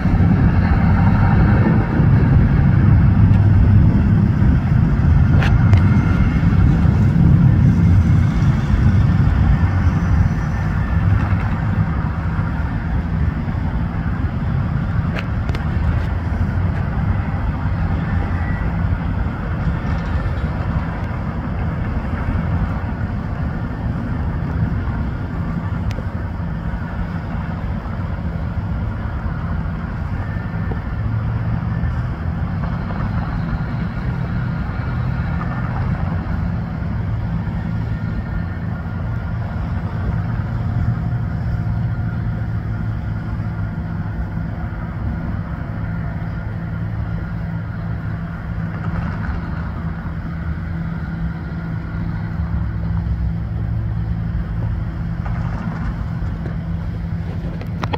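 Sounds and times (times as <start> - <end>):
road traffic: 0.0 - 57.9.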